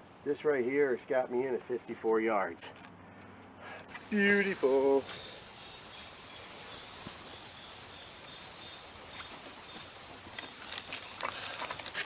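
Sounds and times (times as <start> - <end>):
high hiss: 3.9 - 12.0.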